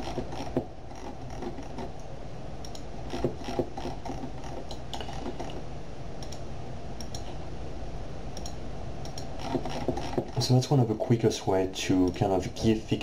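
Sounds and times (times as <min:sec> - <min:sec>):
computer mouse clicking: 0:00.0 - 0:05.6, 0:06.2 - 0:07.4, 0:08.4 - 0:10.4
steady low hum: 0:00.0 - 0:13.0.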